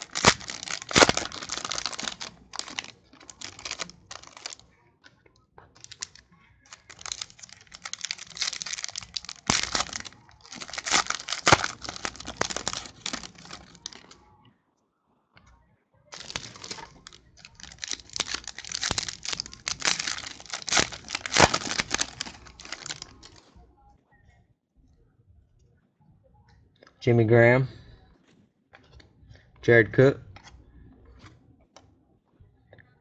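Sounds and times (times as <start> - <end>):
foil wrappers crinkling and tearing: 0.0 - 4.6, 5.8 - 14.2, 16.1 - 23.5.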